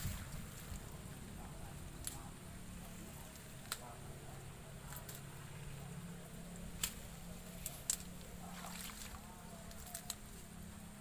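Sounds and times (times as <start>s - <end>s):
steady low hum: 0.0s - 11.0s
plant stems snapping: 2.0s - 2.2s, 3.3s - 3.9s, 4.9s - 5.3s, 6.8s - 10.4s.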